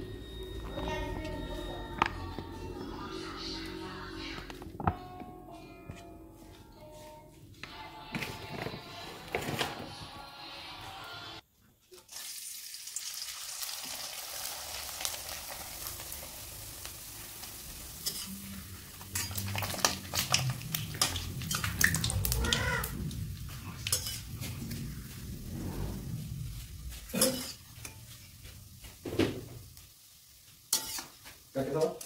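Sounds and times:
crackers sizzling in hot oil: 0:11.9 - 0:32.0
metal utensils scraping a wok: 0:17.4 - 0:29.0, 0:30.7 - 0:31.4.

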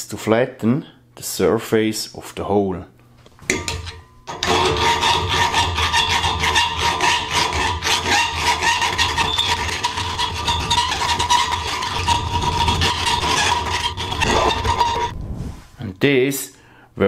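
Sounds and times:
steel file rasping on metal: 0:03.8 - 0:15.1.

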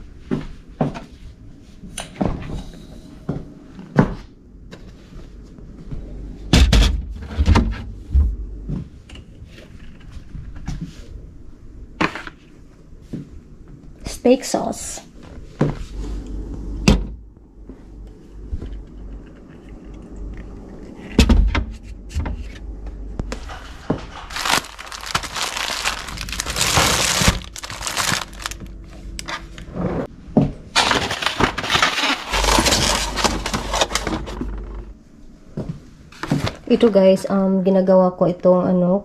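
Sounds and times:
plastic packaging crinkling: 0:24.1 - 0:29.2, 0:30.8 - 0:34.3.

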